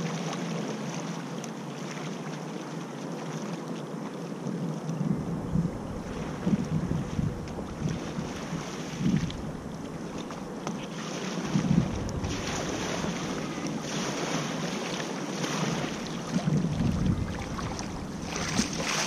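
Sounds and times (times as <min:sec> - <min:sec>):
light water splashes: 0:00.0 - 0:19.0
small waves lapping: 0:00.0 - 0:19.0
wind buffeting microphone: 0:05.0 - 0:14.8, 0:15.5 - 0:19.0.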